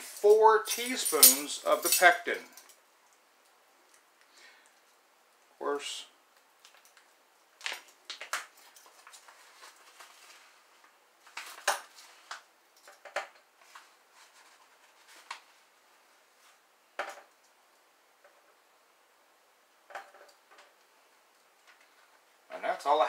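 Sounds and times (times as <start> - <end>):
metal measuring spoons clinking: 0.0 - 2.7.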